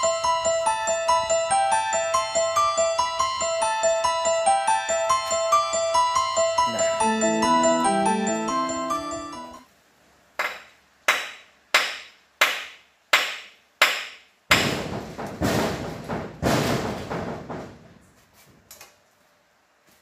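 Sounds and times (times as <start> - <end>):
sharp knocks: 10.4 - 17.9
loud rattling and banging: 14.5 - 18.0.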